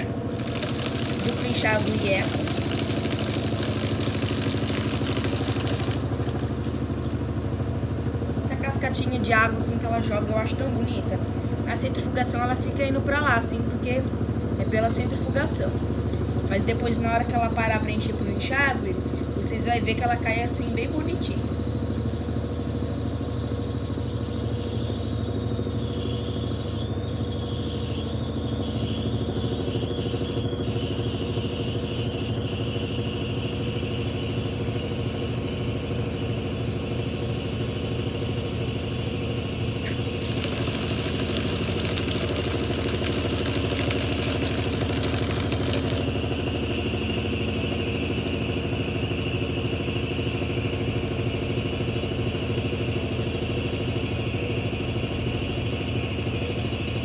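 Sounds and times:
water jets spraying into drum: 0.0 - 9.3, 39.8 - 49.6
washing machine motor and drum hum: 0.0 - 57.0
thin high whine: 24.2 - 54.2.

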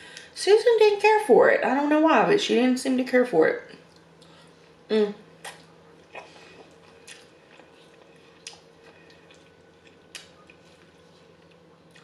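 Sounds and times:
faint hum: 0.0 - 12.0
person humming: 4.9 - 5.2
chewing noodles: 5.4 - 12.0.

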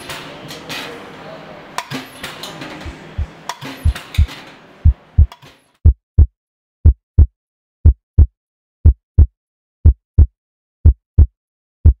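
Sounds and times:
deep heartbeat-like double thumps: 2.9 - 12.0.

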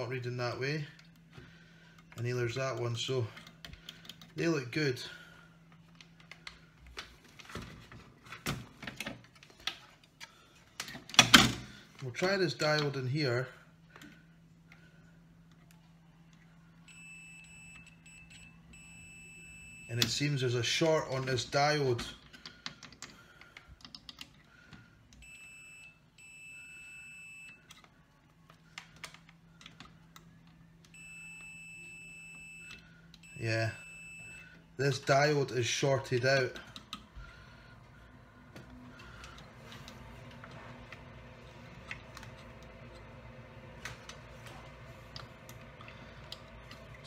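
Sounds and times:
multimeter continuity beep: 16.8 - 20.2, 25.2 - 27.8, 30.8 - 34.7.

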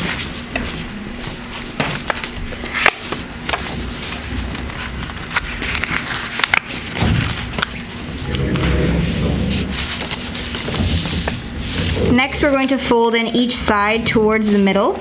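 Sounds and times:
paper rustling and crackling: 0.0 - 12.8
paper fold snaps: 1.9 - 12.0.

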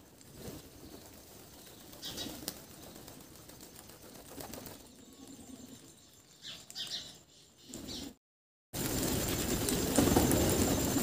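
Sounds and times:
faint wings flapping: 0.0 - 5.2, 8.8 - 11.0.

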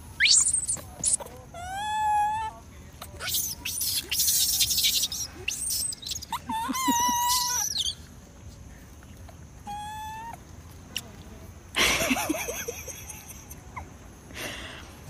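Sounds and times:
baby monkey crying: 0.2 - 8.0, 9.6 - 10.4.

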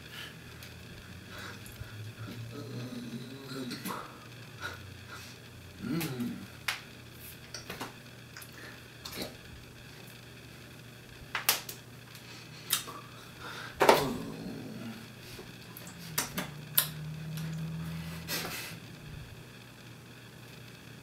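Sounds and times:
hands slapping and clapping: 11.3 - 11.8, 16.1 - 17.0.

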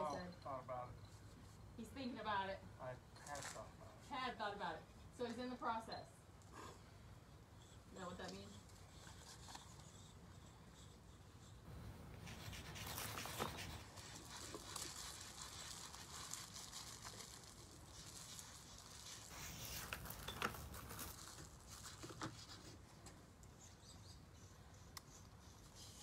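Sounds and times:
chalk scratching on concrete: 8.0 - 19.9.

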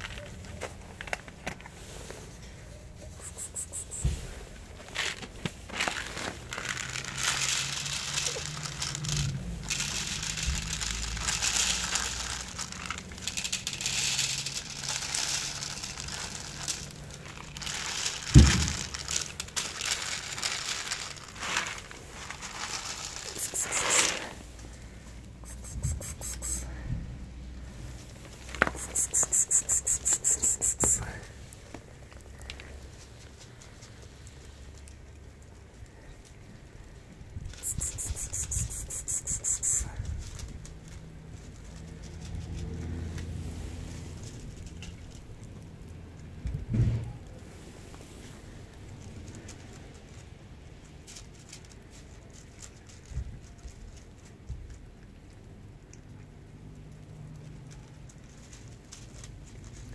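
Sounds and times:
cat crunching kibble: 0.0 - 26.8, 27.6 - 59.9
plastic bag crinkling: 4.7 - 26.7
kibble pouring onto plates: 4.9 - 26.8, 28.3 - 32.8, 37.6 - 43.1.

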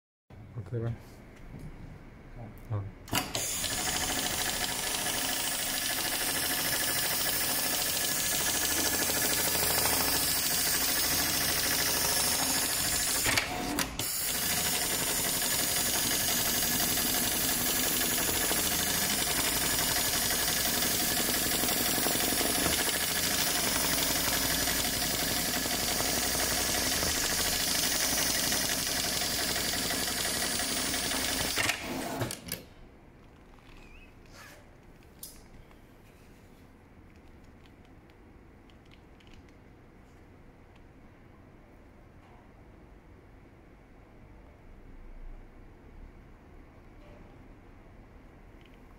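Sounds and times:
sewing machine clattering: 14.1 - 32.5.

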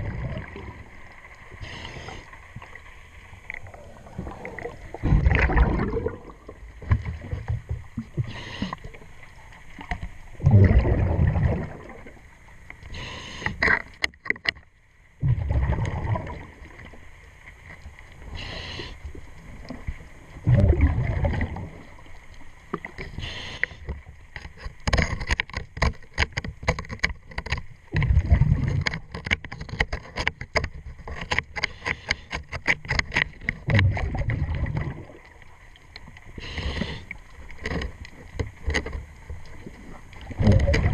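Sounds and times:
exhaust bubbles burbling: 0.0 - 0.9, 3.6 - 7.3, 10.4 - 12.2, 15.2 - 16.8, 20.4 - 21.8, 28.0 - 28.8, 33.6 - 35.2, 40.3 - 40.9
regulator hiss on inhale: 1.5 - 2.5, 8.2 - 9.0, 12.8 - 13.6, 18.2 - 19.2, 23.1 - 23.9, 36.3 - 37.2.

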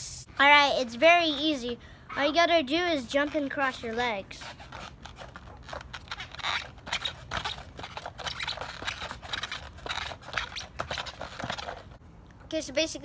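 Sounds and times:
feet scuffing on grip tape: 3.1 - 12.0.

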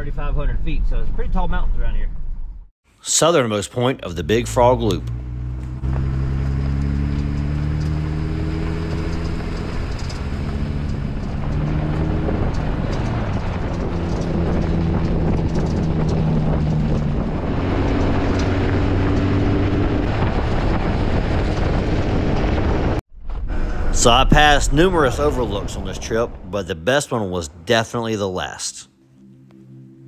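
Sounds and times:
road and tyre noise: 4.0 - 27.8
car engine running: 4.1 - 26.4.

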